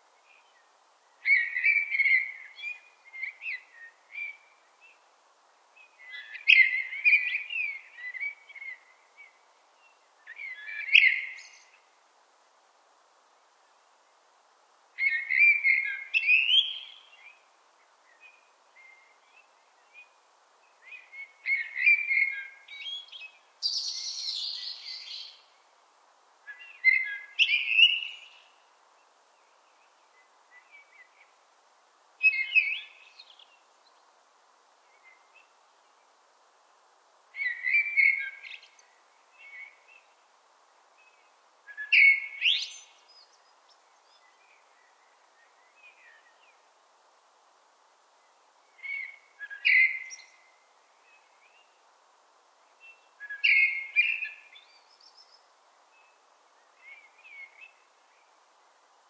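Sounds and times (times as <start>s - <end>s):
blackbird singing: 10.3s - 11.8s, 15.0s - 17.4s, 20.9s - 25.5s, 26.5s - 28.5s, 32.2s - 33.5s, 37.4s - 38.8s, 41.7s - 43.4s, 48.8s - 50.4s, 52.9s - 55.4s.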